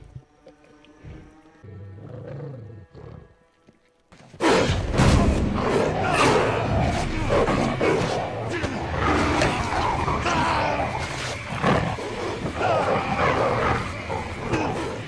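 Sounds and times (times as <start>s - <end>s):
dramatic music: 4.3s - 15.0s
wolf growling and snarling: 4.4s - 15.0s.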